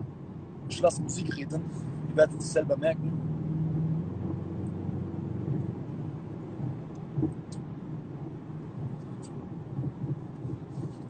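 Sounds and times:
car road and engine rumble: 0.0 - 11.0
short low thump: 6.6 - 7.5.

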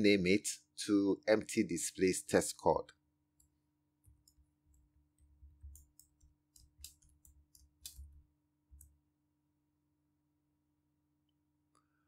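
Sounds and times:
keyboard typing: 3.4 - 9.0.

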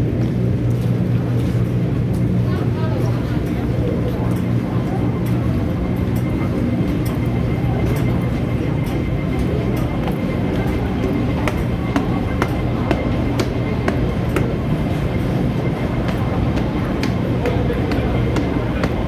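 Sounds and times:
metro station rumble and hum: 0.0 - 19.0
footsteps on stone stairs: 10.5 - 14.6, 15.4 - 19.0.

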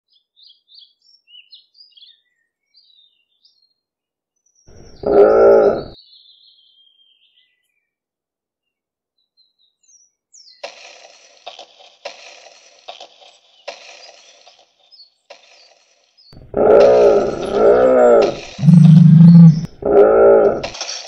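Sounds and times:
birds chirping: 4.7 - 6.0, 16.4 - 20.7
dinosaur call sound effect: 4.8 - 6.0, 16.4 - 20.7.

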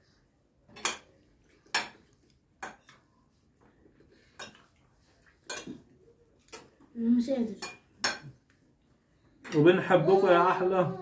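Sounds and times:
cutlery clinking on plates: 0.7 - 3.1, 4.2 - 4.8, 5.4 - 5.9, 7.6 - 8.4.

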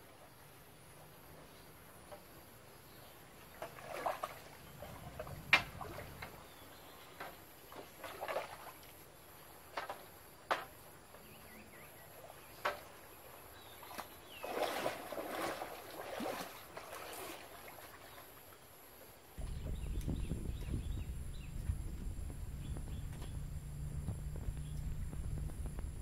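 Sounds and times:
water sloshing and splashing: 3.4 - 10.8, 12.1 - 18.6
hollow knocks of bamboo: 9.8 - 10.8.

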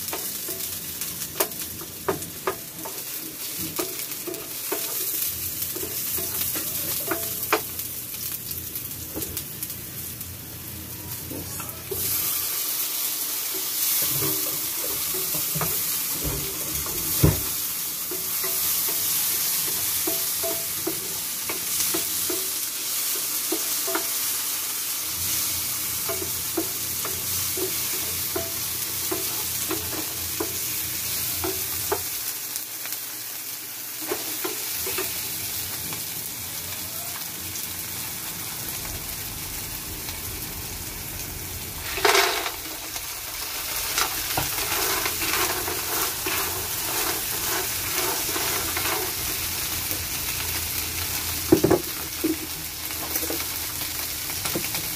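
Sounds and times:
food sizzling in oil: 0.0 - 54.9
clams clattering into pan: 41.8 - 49.2
spoon scraping pan: 43.7 - 49.4.

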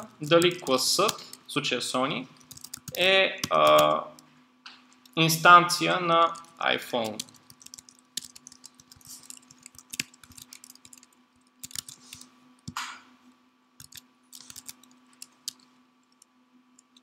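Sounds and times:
faint steady hum: 0.0 - 17.0
computer keyboard keystrokes: 2.4 - 3.9, 6.3 - 12.3, 13.8 - 17.0.

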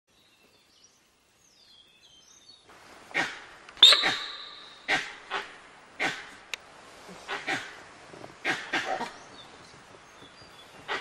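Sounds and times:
faint bird chirps: 3.8 - 4.9.

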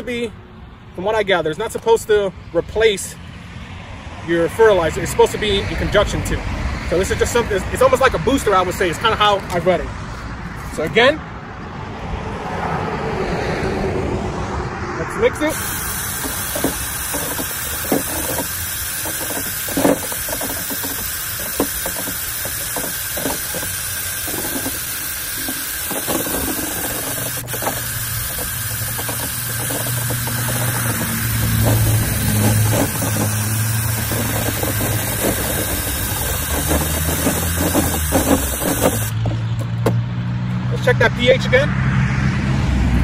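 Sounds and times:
cordless drill whirring: 15.5 - 39.2
liquid churning and knocking in tank: 15.5 - 40.0.

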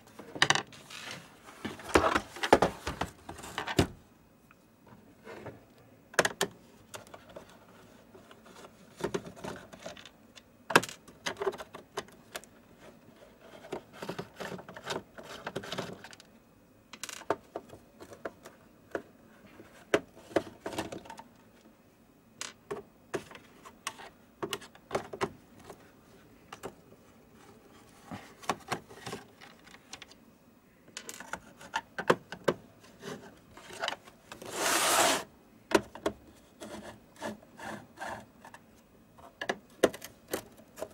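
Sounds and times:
loud scrape: 34.4 - 35.3.

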